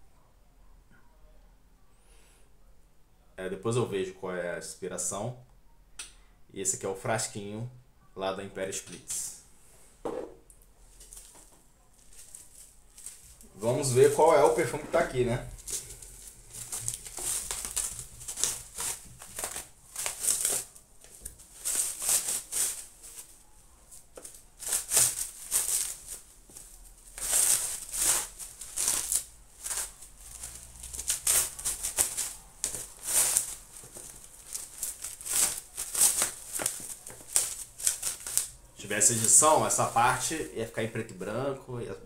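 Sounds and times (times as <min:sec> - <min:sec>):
bubble wrap crinkling: 0:10.7 - 0:41.0.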